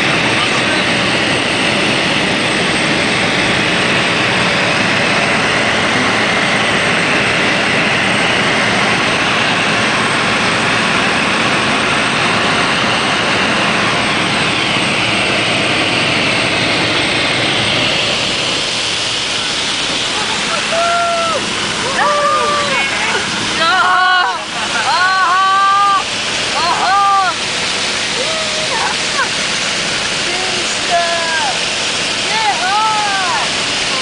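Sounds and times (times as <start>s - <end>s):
propeller aircraft cabin drone: 0.0s - 34.0s.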